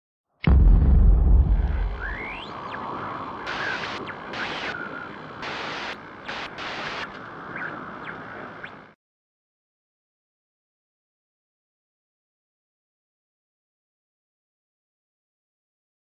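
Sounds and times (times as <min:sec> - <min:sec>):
deep boom: 0:00.4 - 0:02.5
glitchy bursts: 0:00.5 - 0:02.8, 0:03.4 - 0:07.2
hiss of noise: 0:01.8 - 0:08.6
whistling sweeps: 0:01.9 - 0:02.8.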